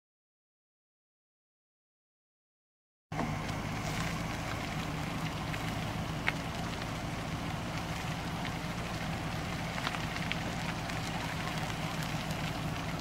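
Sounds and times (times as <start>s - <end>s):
vehicle engine humming: 3.1s - 13.0s.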